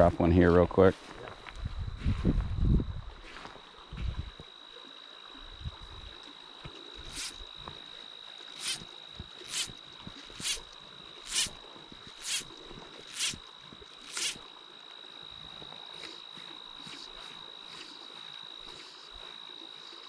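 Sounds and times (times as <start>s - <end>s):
faint high whine: 0.0s - 20.0s
fly line rasping through guides: 7.0s - 7.6s, 8.5s - 14.5s, 15.6s - 20.0s.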